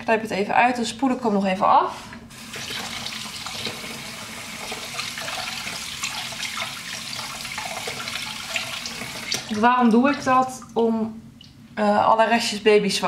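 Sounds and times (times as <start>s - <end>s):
tap water splashing: 2.5s - 4.0s, 4.6s - 10.3s.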